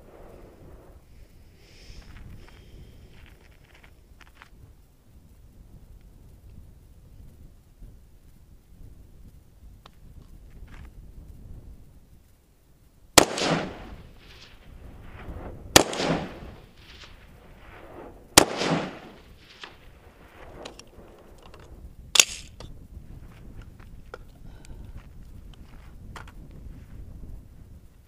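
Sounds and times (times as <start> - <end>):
rifle shots with echo: 13.2 - 14.5, 15.7 - 17.7, 18.4 - 19.8
sharp click: 20.6 - 22.7.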